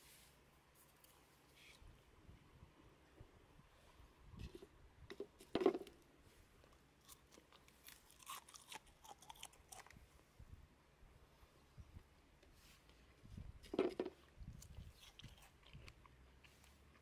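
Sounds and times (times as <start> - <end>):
crackling chewing crunches: 6.6 - 10.2, 13.6 - 17.0
crunchy bite: 7.0 - 10.0, 14.5 - 16.1.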